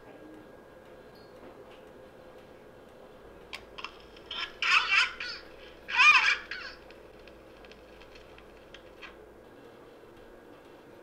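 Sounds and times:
toy squeaky voice: 4.3s - 6.8s.

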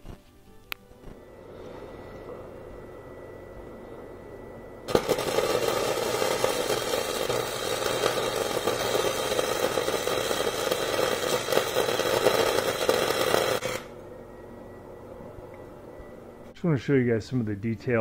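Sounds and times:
welding arc crackling: 4.9s - 13.9s.

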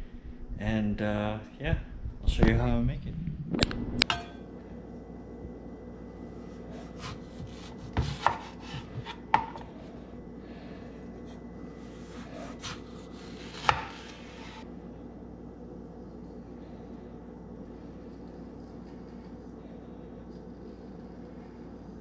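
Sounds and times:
knife slicing mango: 6.8s - 9.2s, 11.9s - 14.6s.

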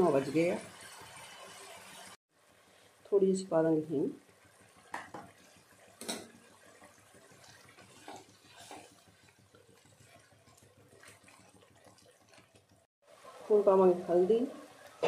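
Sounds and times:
sauce simmering and bubbling: 0.6s - 3.1s, 4.2s - 13.5s, 14.5s - 15.0s
spatula scraping and tapping: 7.4s - 12.8s.

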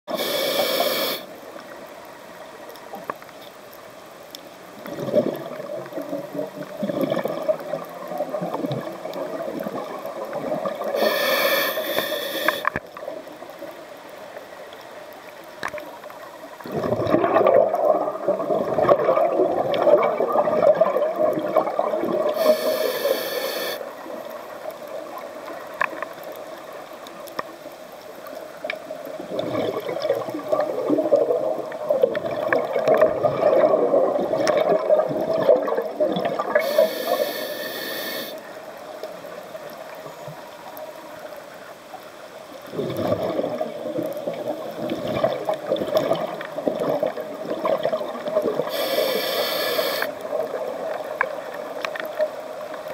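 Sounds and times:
regulator hiss: 0.1s - 1.4s, 10.9s - 12.8s, 22.4s - 23.9s, 36.6s - 38.6s, 48.7s - 50.2s
underwater bubbles gurgling: 0.1s - 52.9s.

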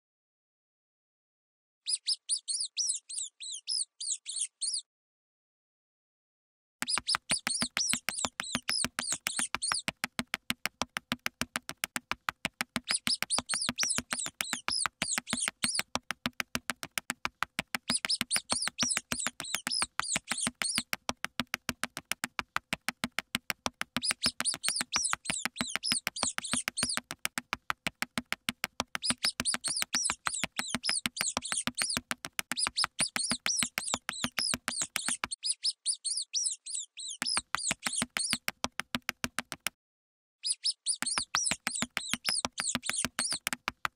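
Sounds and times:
high-pitched mouse squeaks: 1.9s - 4.8s, 6.8s - 10.2s, 12.8s - 16.0s, 17.8s - 21.0s, 24.0s - 27.2s, 28.9s - 38.5s, 40.4s - 43.6s
fast steady clicking: 6.8s - 35.3s, 37.3s - 39.7s, 41.0s - 43.9s.

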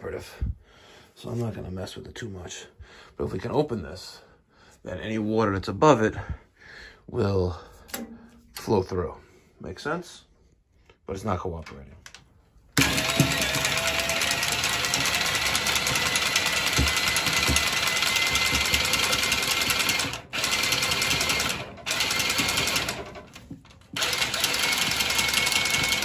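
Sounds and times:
cutting tool motor whine: 12.8s - 23.0s, 23.9s - 26.0s.

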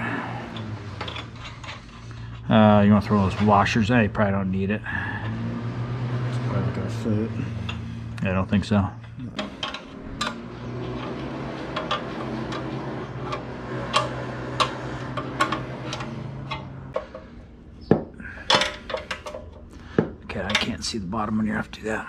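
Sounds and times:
metal clanks: 0.0s - 4.4s, 5.0s - 21.1s
steady low hum: 0.0s - 22.0s
metal clicks of nuts and bolts: 0.4s - 2.5s, 9.0s - 20.9s.

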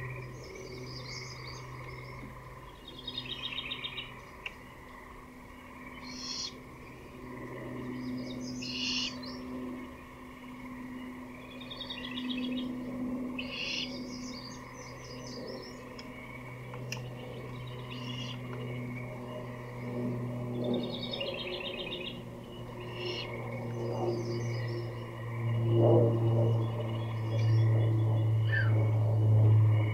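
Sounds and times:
songbirds singing trilled phrases: 0.0s - 19.9s, 20.5s - 25.6s, 26.2s - 28.8s
steady low hum: 0.0s - 29.9s.

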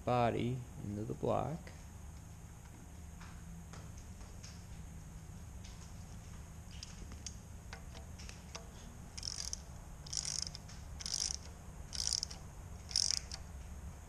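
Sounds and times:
ratchet wrench clicking: 8.5s - 13.5s.

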